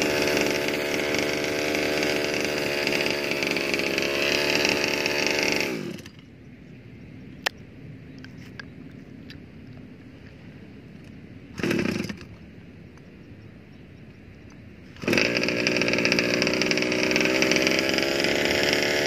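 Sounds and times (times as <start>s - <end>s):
small two-stroke engine idling: 0.0s - 6.3s, 11.6s - 12.3s, 14.9s - 19.0s.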